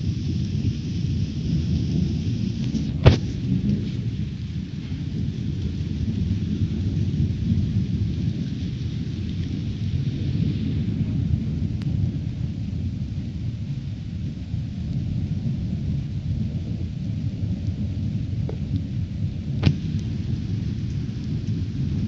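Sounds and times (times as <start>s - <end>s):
sharp thunder crack: 0.0s - 8.4s, 19.4s - 22.0s
rain hissing: 0.0s - 22.0s
thunder rumbling: 0.0s - 22.0s.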